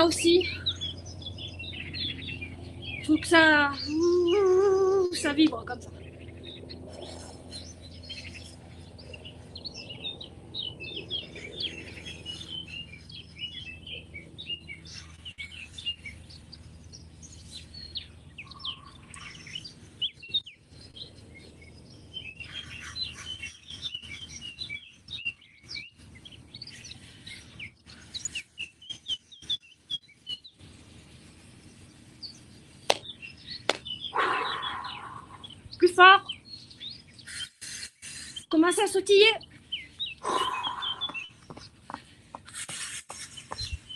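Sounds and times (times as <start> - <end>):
songbirds chirping: 0.0 - 43.9.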